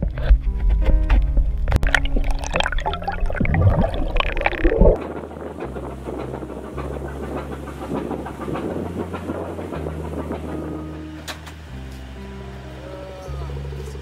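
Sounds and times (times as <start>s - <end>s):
muffled underwater bubbling: 1.7s - 5.0s
rush of wind and water: 1.7s - 11.2s.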